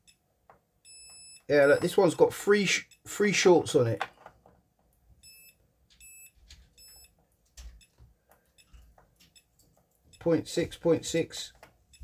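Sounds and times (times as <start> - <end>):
multimeter short high beeps: 0.9 - 1.9, 5.2 - 7.1.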